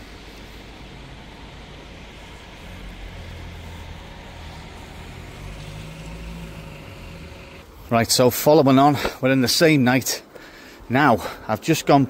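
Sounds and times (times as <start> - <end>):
vehicle engine rumble: 0.0 - 7.9
steady hiss: 0.0 - 12.0.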